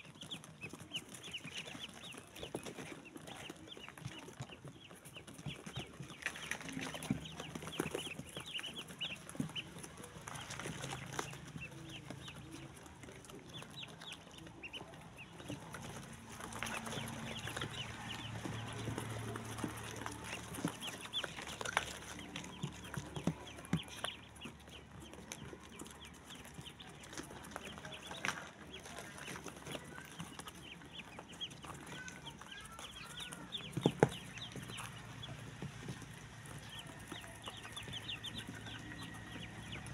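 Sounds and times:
ducklings peeping: 0.0 - 39.9.

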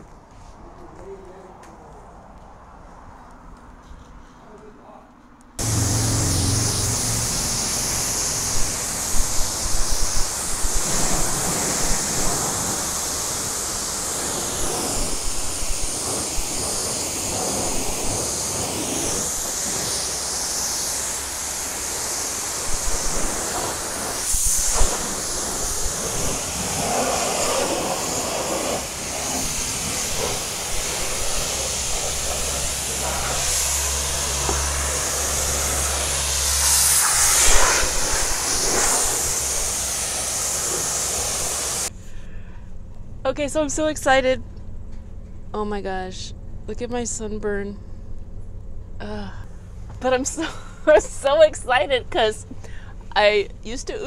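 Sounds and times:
low pump hum: 5.6 - 16.7
high-pressure water spray hissing: 5.6 - 41.9.

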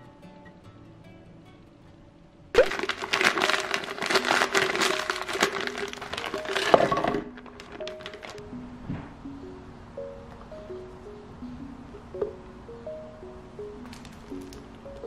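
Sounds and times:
soft guitar music: 0.0 - 2.5, 4.9 - 15.0
frozen fruit clattering into blender jar: 2.6 - 8.4, 13.9 - 14.7.

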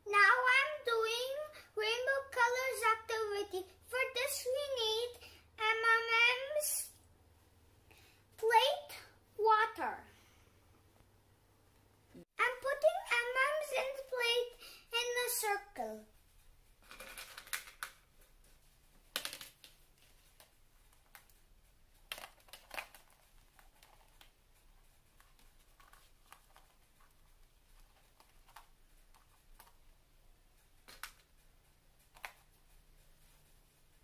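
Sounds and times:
candies clicking on plastic: 16.8 - 18.0, 19.1 - 19.8, 22.0 - 23.2, 30.9 - 31.2.

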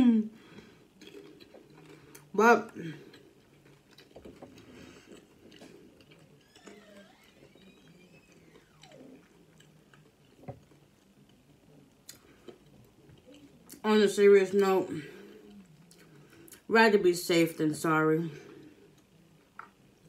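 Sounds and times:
chewing and biting food: 0.8 - 2.3, 3.0 - 13.8
faint rising and falling tone: 4.8 - 12.0.

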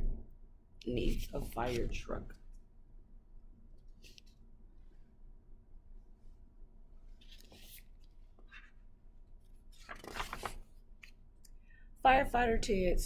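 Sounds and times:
paper pages rustling: 1.0 - 2.1, 7.2 - 11.2.

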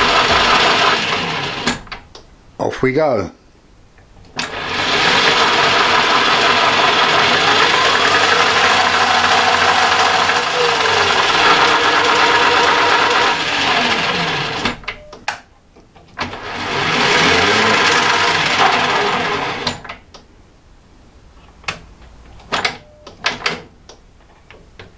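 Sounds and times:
metal lathe running: 0.0 - 1.7, 4.4 - 14.6, 16.4 - 19.7.

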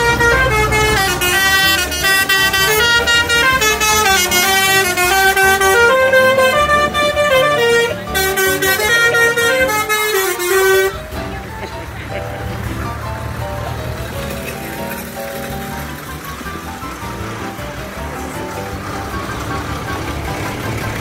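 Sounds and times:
brassy horn-like tune: 0.0 - 11.3.

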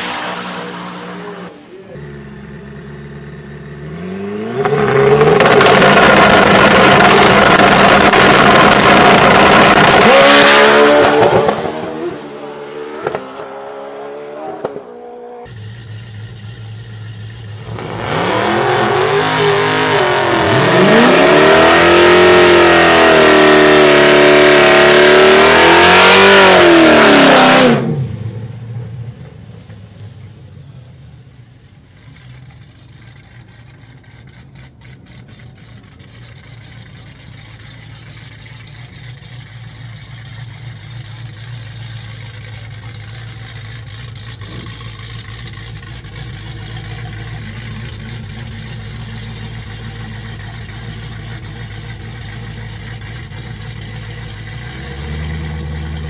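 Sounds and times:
motorcycle engine at high revs: 0.0 - 28.2, 41.6 - 56.0
car engine revving and launching: 0.0 - 33.8.

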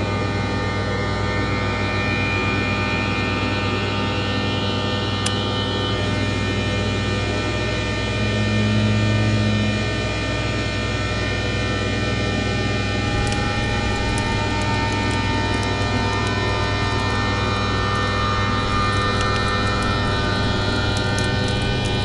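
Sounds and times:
low hum: 0.0 - 22.0
electronic drone music: 12.7 - 22.0.

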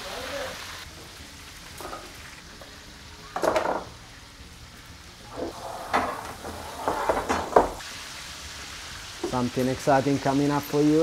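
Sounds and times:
meat sizzling in a pan: 0.0 - 5.6, 7.8 - 11.0.

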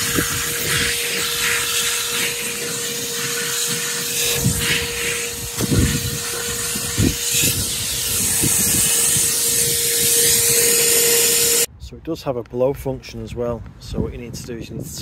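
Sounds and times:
vacuum cleaner running: 0.0 - 11.7.

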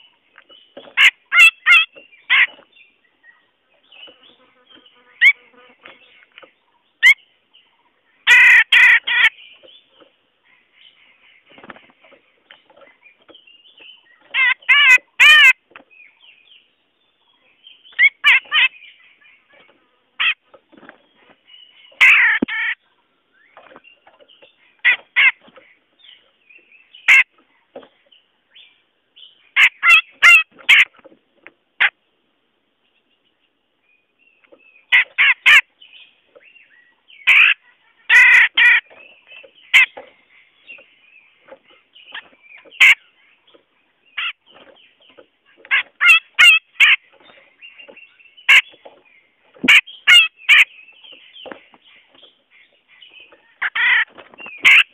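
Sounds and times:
bird harsh chattering calls: 0.8 - 2.7, 3.8 - 6.3, 7.0 - 7.3, 8.2 - 12.5, 14.0 - 15.6, 17.8 - 20.4, 21.7 - 22.8, 23.6 - 27.4, 29.4 - 31.0, 34.8 - 36.1, 37.1 - 54.9.

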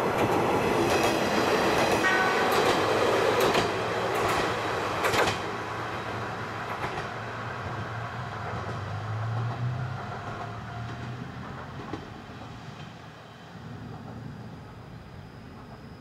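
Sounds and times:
diesel railcar passing: 0.0 - 16.0.

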